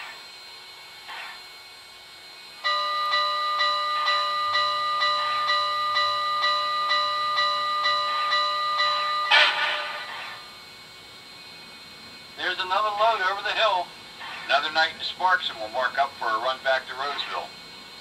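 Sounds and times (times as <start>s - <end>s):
locomotive bell ringing: 2.6s - 10.6s.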